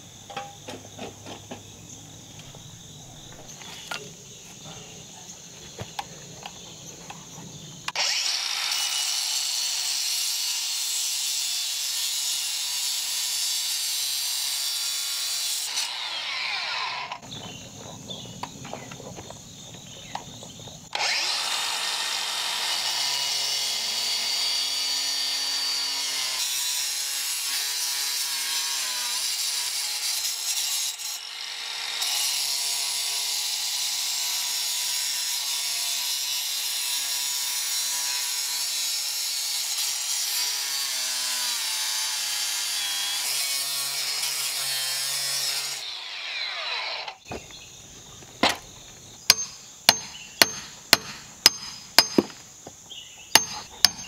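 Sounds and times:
power tool cutting into ground: 7.9 - 17.2, 20.9 - 47.3, 49.3 - 52.4.

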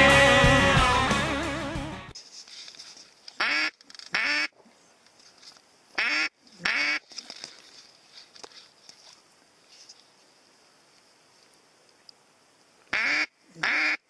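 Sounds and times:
duck call quacks: 3.4 - 4.5, 6.0 - 7.0, 12.9 - 14.0.

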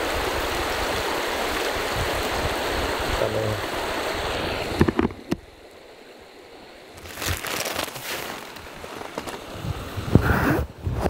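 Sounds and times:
shallow stream over stones: 0.0 - 10.1
camera handling knocks: 4.8 - 5.4
jacket fabric rustling: 7.0 - 9.5.

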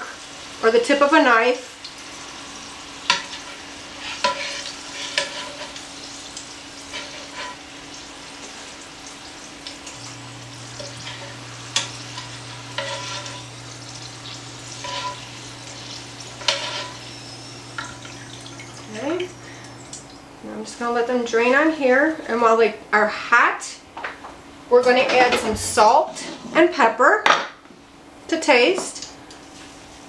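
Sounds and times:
oil sizzling: 0.0 - 22.4, 24.0 - 26.3
wire skimmer scraping a pan: 3.0 - 6.0, 6.8 - 7.7, 9.8 - 19.9
low hum: 9.8 - 20.5.

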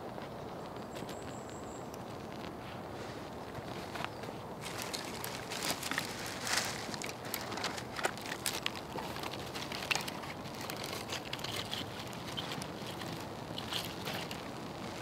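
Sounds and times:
dry twigs rustling and snapping: 3.2 - 15.0
fire crackling and popping: 4.6 - 15.0.

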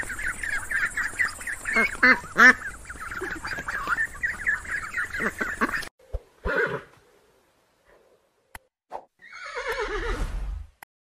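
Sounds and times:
loud geese honks: 0.0 - 4.0
geese calling: 0.0 - 5.9.

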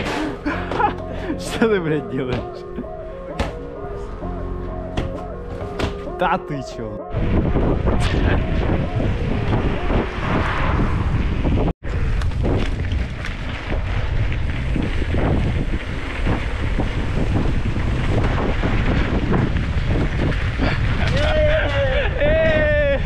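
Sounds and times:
wind buffeting microphone: 7.0 - 23.0.

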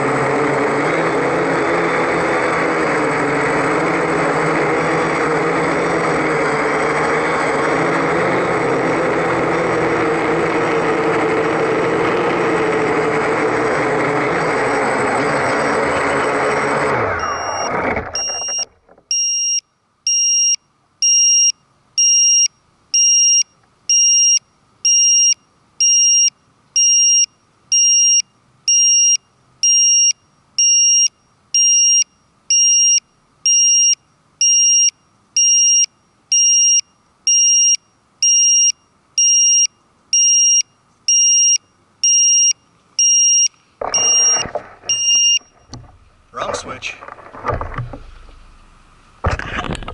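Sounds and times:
drone motors spinning down: 0.0 - 19.0, 43.8 - 48.6
high-pitched electronic beeps: 17.2 - 22.4, 30.8 - 45.5.

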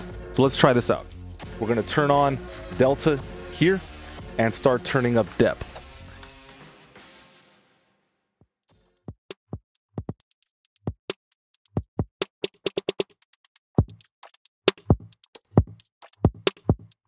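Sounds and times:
drum hit clicks and thuds: 9.0 - 17.0.

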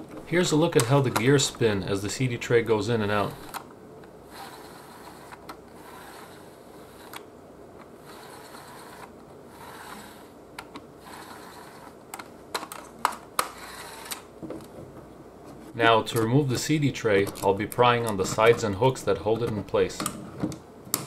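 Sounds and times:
cd drive tray whirring and rattling: 8.0 - 12.4.

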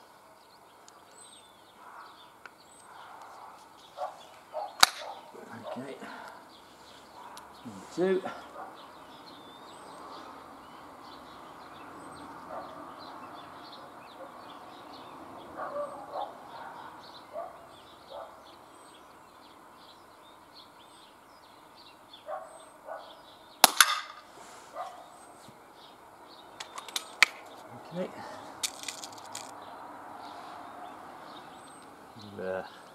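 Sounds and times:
air pistol shot: 4.8 - 5.2, 23.6 - 24.3.

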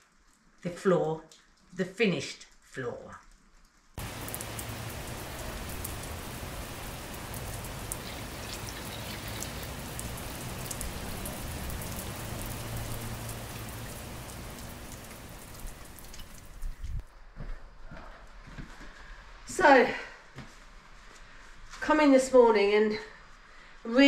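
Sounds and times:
rain falling and dripping: 0.0 - 17.1.

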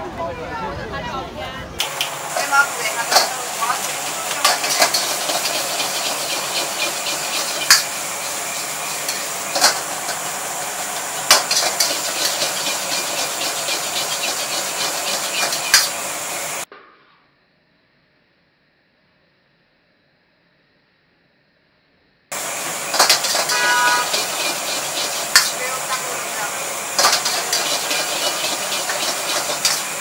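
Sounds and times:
rice sizzling in a wok: 1.8 - 16.7, 22.3 - 30.0
metal ladle scraping a wok: 3.1 - 10.2.

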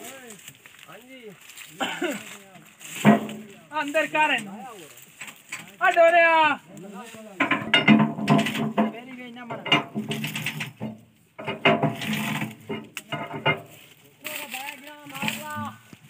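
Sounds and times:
metal ratchet clicking and clanking: 7.4 - 13.8.

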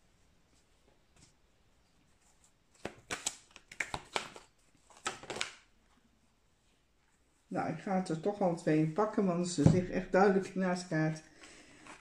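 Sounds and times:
cards shuffling: 2.4 - 5.7.

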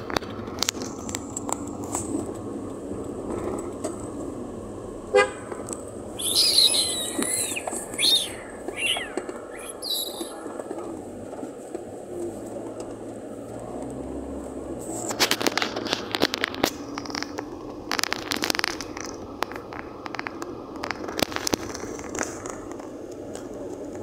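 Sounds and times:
crackling and scraping clicks: 0.0 - 4.1, 14.8 - 24.0.

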